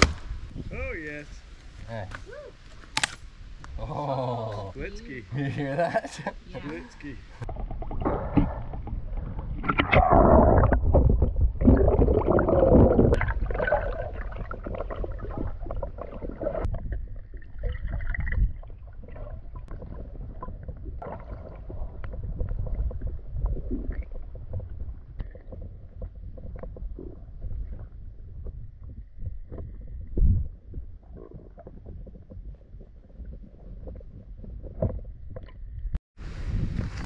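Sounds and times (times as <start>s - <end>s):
water sloshing and gurgling: 7.1s - 36.0s
muffled underwater rumble: 7.4s - 37.0s.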